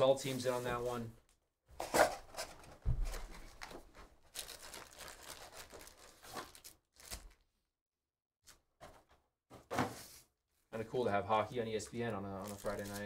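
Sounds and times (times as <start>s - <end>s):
foil wrappers crinkling: 3.2s - 7.4s, 11.9s - 13.0s.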